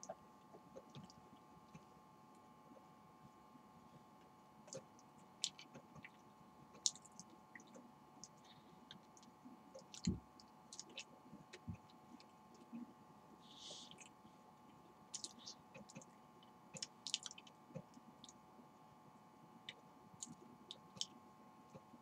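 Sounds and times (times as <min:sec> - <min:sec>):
wet mouth clicks and smacks: 0:15.2 - 0:16.1, 0:16.8 - 0:17.4.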